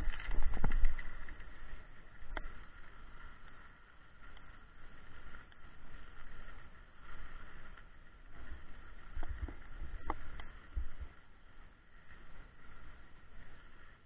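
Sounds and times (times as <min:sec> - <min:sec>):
skis sliding over snow: 0:00.0 - 0:14.0.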